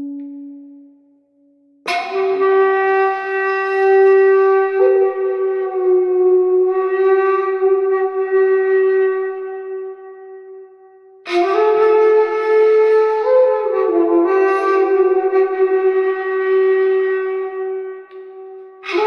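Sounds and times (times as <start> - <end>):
wind instrument long held notes: 0.0 - 1.0, 1.8 - 19.0.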